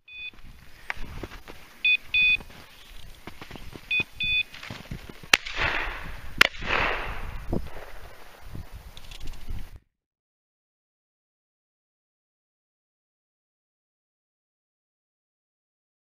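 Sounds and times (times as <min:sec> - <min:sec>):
dog collar short double beeps: 0:01.8 - 0:02.4, 0:03.9 - 0:04.5
shotgun shots: 0:05.3 - 0:08.5.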